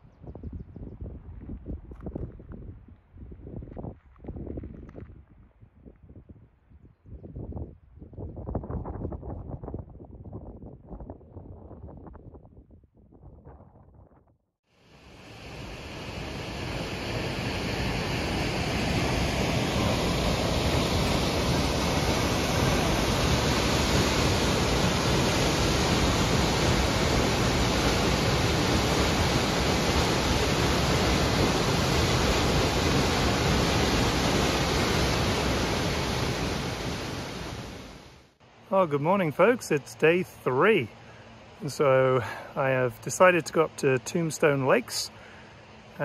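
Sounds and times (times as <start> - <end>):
rush of falling water: 14.8 - 38.1.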